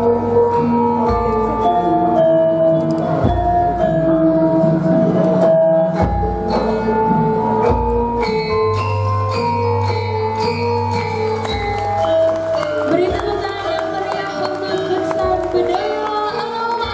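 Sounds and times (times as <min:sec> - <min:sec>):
gamelan metallophones and kettle gongs: 0:00.0 - 0:13.1.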